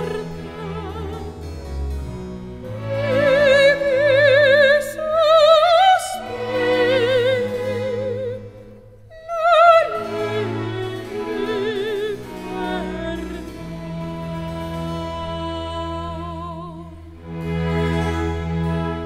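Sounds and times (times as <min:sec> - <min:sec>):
sustained instrumental accompaniment: 0:00.0 - 0:19.0
operatic singing voice: 0:02.7 - 0:17.8.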